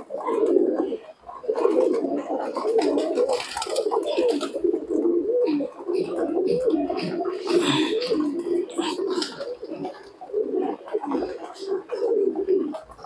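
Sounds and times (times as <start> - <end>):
birds pecking: 0.0 - 13.0
pigeons cooing: 0.0 - 13.0
wings fluttering: 1.5 - 5.0.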